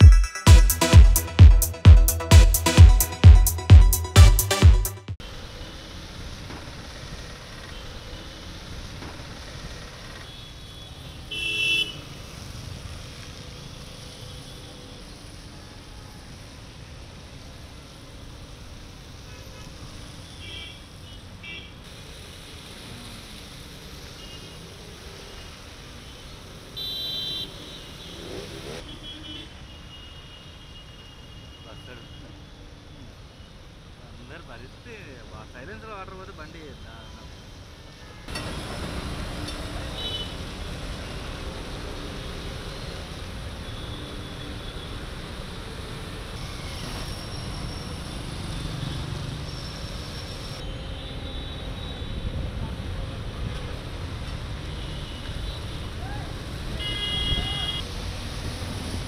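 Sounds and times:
vehicle horn: 10.3s - 12.1s, 26.8s - 30.1s, 39.9s - 40.4s, 56.8s - 57.8s
vehicle engines rumbling: 21.9s - 26.8s, 27.4s - 29.0s, 36.6s - 59.0s
motorcycle engines rumbling: 22.0s - 26.7s, 27.4s - 29.0s.

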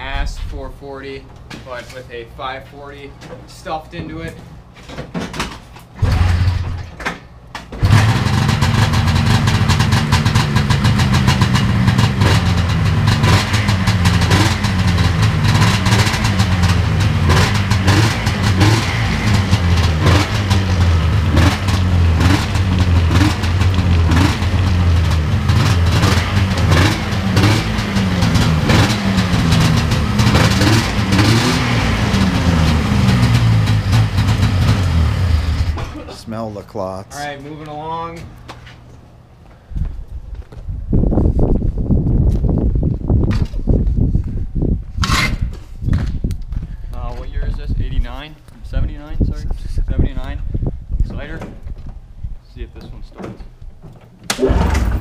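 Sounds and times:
snowmobile engine revving: 7.8s - 35.8s, 54.4s - 55.0s.

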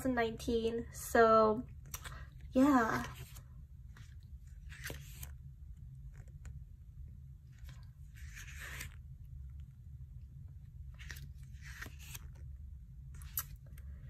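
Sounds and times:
faint low hum: 0.0s - 14.0s
photobook pages turning: 1.9s - 6.6s, 7.5s - 9.1s, 10.8s - 12.5s, 13.1s - 13.8s.

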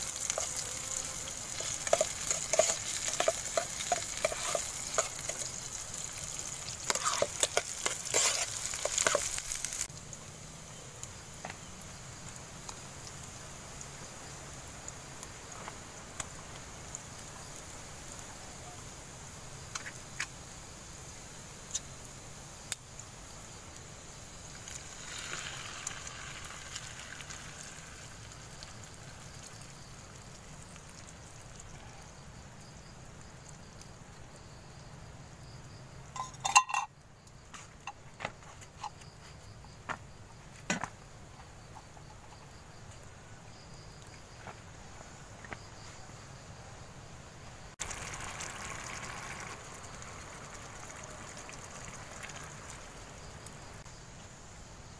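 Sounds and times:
steady hiss: 0.0s - 54.9s
food scraped from a can: 6.8s - 9.4s
tin clinking against metal pot: 36.2s - 36.9s.

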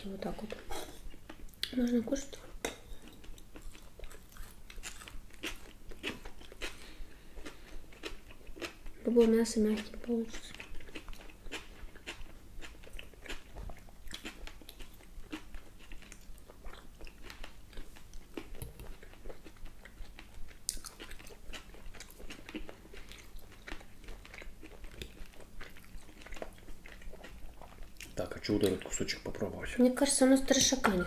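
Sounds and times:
chewing and mouth sounds: 0.2s - 29.2s.

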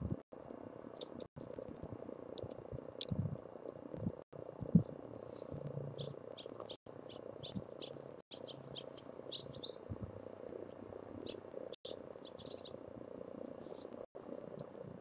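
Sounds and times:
steady low hum: 0.0s - 15.0s
songbirds chirping: 5.3s - 9.9s, 11.2s - 12.8s.

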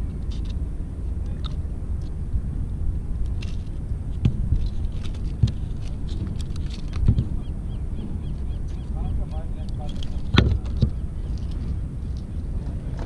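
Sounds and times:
wind on microphone: 0.0s - 13.0s
fish tail thumping wooden boards: 4.2s - 4.6s, 5.3s - 8.2s, 10.2s - 11.1s.

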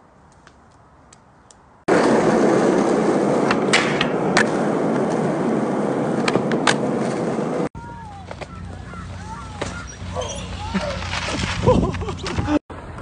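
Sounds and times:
skateboard clacks: 1.9s - 5.4s, 6.1s - 7.3s
skateboard wheels rolling: 1.9s - 13.0s.

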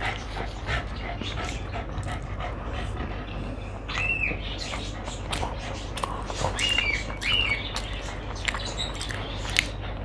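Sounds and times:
dog whining: 3.5s - 9.0s.

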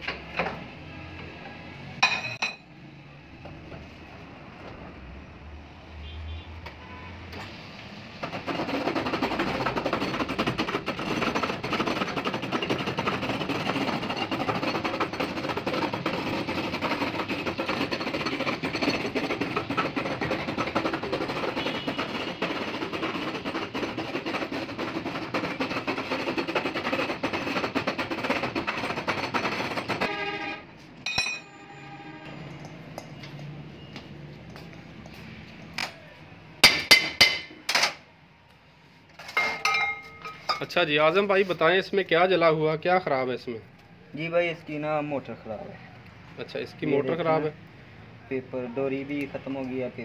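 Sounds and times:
metallic ring and clank: 31.0s - 31.7s, 39.3s - 40.7s.

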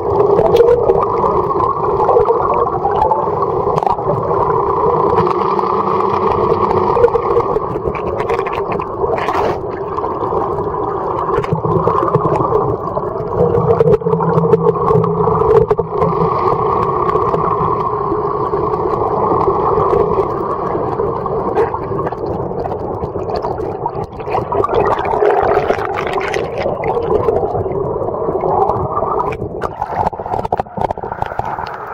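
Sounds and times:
muffled boat engine underwater: 0.0s - 31.9s.

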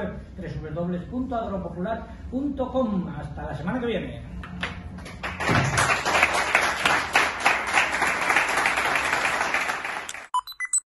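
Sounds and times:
audience applauding: 5.2s - 10.3s.

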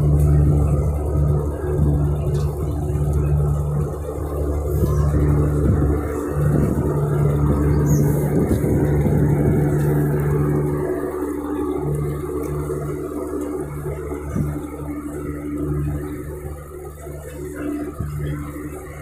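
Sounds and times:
boat engine droning: 0.0s - 19.0s.

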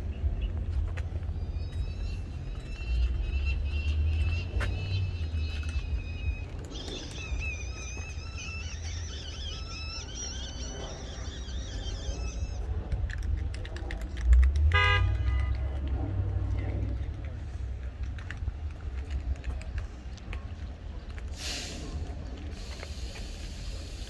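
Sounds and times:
car horn toot: 14.7s - 15.6s.

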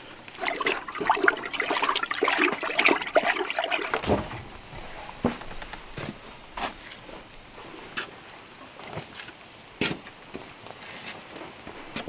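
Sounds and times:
water sloshing in plastic pail: 0.0s - 8.0s.

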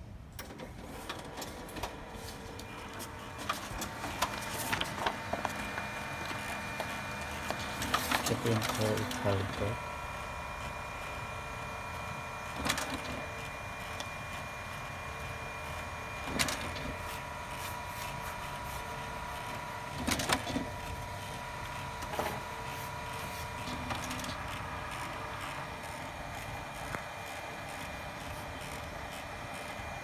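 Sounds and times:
printer clacks: 0.4s - 30.0s
printer mechanical whir: 0.4s - 30.0s.

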